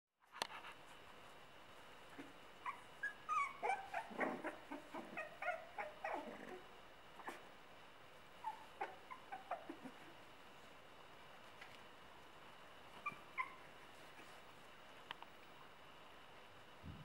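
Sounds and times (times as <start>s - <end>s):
puppy whimpering and yipping: 2.1s - 7.5s, 8.4s - 10.2s, 12.9s - 14.4s.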